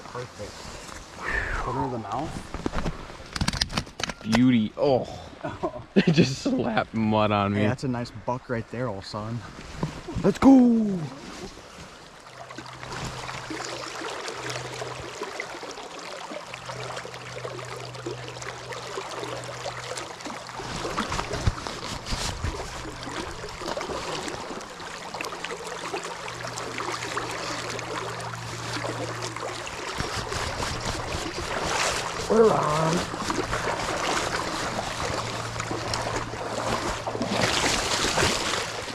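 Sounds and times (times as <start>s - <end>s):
river water rushing and splashing: 9.6s - 38.9s.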